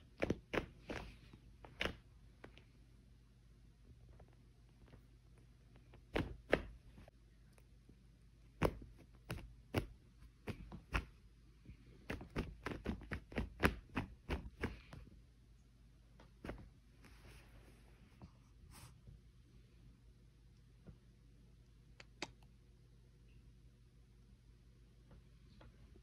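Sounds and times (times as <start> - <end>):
cat kicking fabric thumps: 6.1 - 7.0, 8.6 - 11.2, 12.1 - 15.0.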